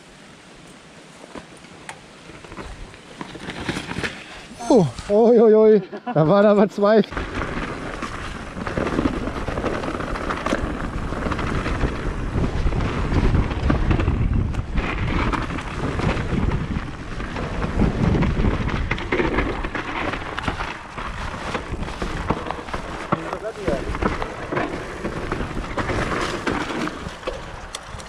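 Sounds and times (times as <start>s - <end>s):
rumble of bike tyres: 0.0s - 5.5s, 7.0s - 28.0s
bike rattling over ground: 1.2s - 5.5s, 6.2s - 28.0s
wind buffeting microphone: 7.2s - 28.0s.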